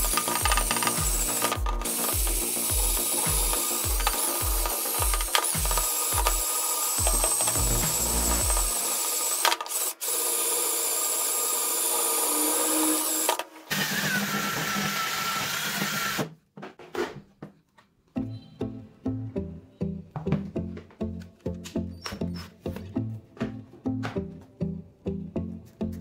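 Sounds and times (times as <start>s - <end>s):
cordless drill whining: 0.0s - 16.3s.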